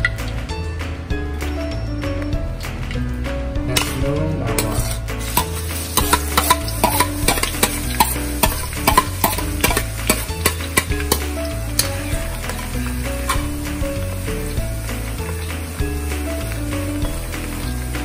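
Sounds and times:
garlic sizzling in oil: 4.6s - 18.0s.

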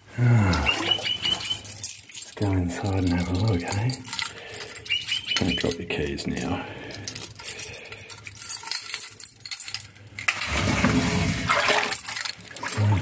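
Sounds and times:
keys jangling against lock: 1.2s - 10.3s, 11.9s - 12.9s.

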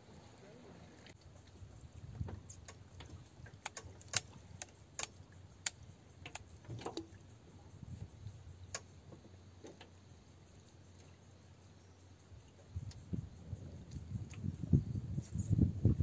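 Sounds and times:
fishing tackle clicks and taps: 3.5s - 7.1s.

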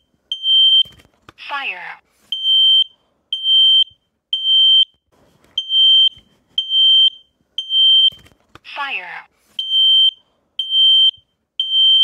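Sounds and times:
smoke alarm beeping: 0.0s - 1.0s, 2.3s - 5.0s, 5.6s - 8.2s, 9.6s - 12.0s.

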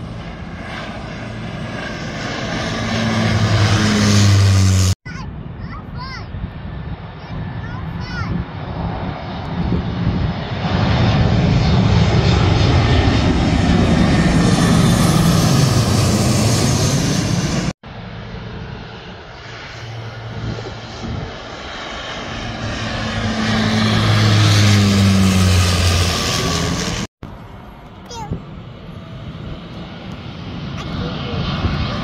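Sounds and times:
jet airliner flying overhead: 0.0s - 32.0s
turboprop propeller drone: 0.0s - 32.0s.

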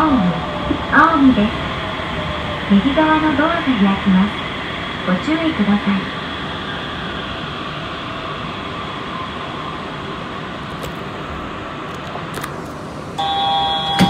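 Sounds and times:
train running rumble and hiss: 0.0s - 14.0s
electronic door chime: 13.2s - 14.0s.

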